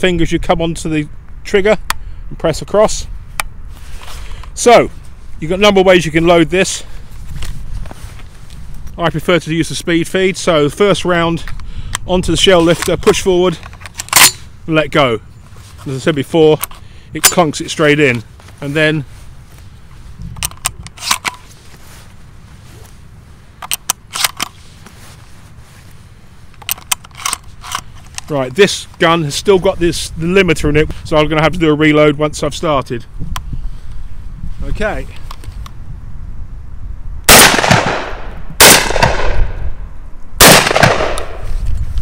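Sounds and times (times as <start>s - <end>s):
metallic clicks of shells loading: 20.4s - 21.5s, 23.6s - 24.6s, 26.6s - 28.3s
shotgun shots echoing: 37.3s - 39.6s, 40.4s - 41.4s.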